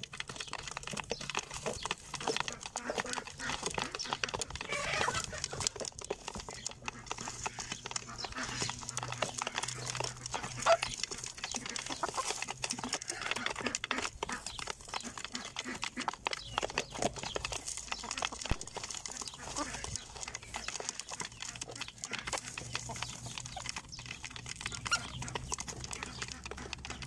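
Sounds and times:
chickens clucking: 0.0s - 27.0s
chickens pecking grain: 0.0s - 27.0s
chicken call: 4.6s - 5.5s.

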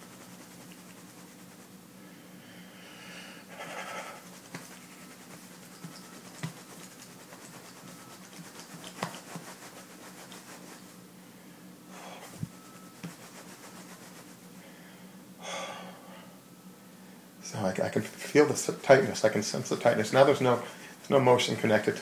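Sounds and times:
low steady hum: 0.0s - 22.0s
phone rubbing against couch: 3.5s - 11.0s, 12.2s - 14.4s.

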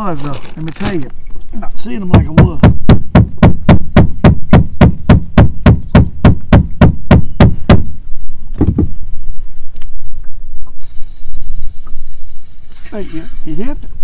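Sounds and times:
rapid sharp knocks: 2.1s - 7.9s.

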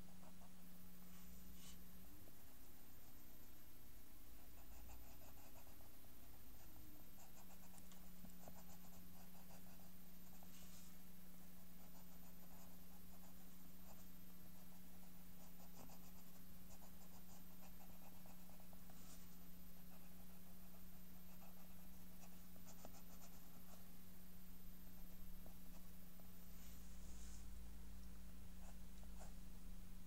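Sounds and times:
pencil scratching on paper: 4.4s - 11.0s, 11.6s - 23.9s.

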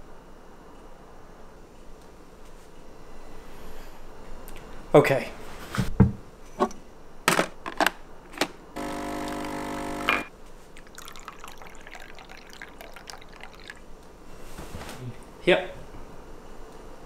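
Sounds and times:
coffee machine pump buzzing: 8.8s - 10.3s
milk trickling into cup: 10.7s - 13.9s.

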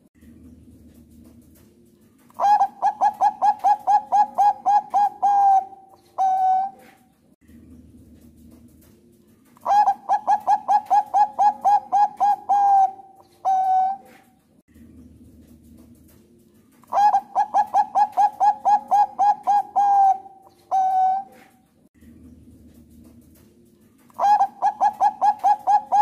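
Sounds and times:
dove cooing: 2.3s - 7.1s, 9.6s - 14.4s, 16.8s - 21.7s, 24.0s - 26.0s.

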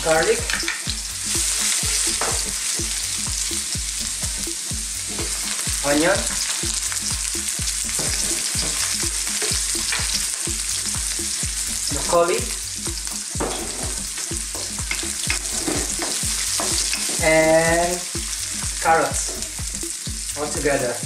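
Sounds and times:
vegetables sizzling in hot oil: 0.0s - 21.0s
spatula scraping wok: 13.4s - 17.6s.

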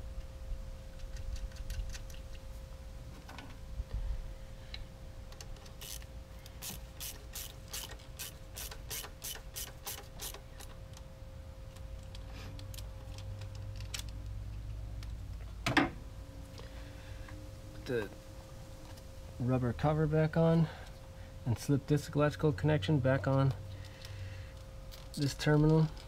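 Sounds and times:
ratchet wrench clicking: 5.6s - 10.7s.

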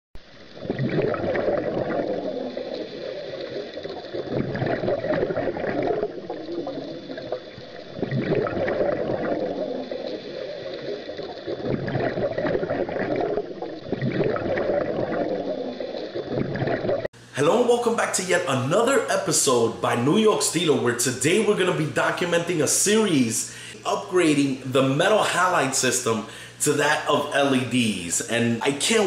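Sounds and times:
underwater gurgling and bubbling: 0.2s - 17.1s.

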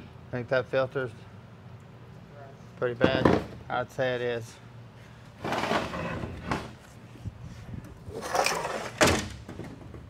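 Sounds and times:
metal parts scraping: 5.4s - 6.8s.

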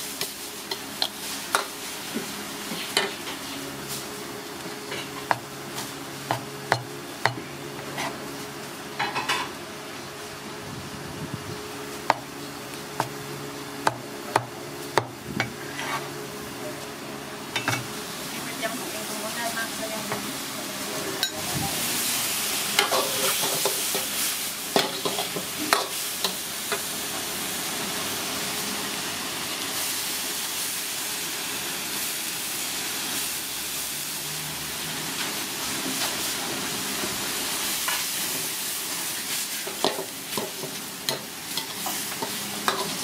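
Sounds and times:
food sizzling in a wok: 0.0s - 13.8s, 17.3s - 43.0s
metal ladle scraping a wok: 15.5s - 16.1s.

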